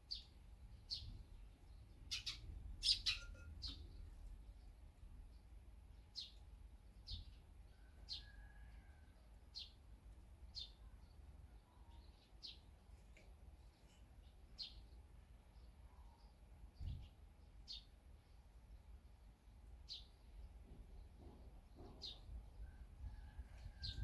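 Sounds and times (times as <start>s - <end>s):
faint bird chirps: 0.0s - 9.1s, 10.5s - 15.0s, 15.6s - 18.8s.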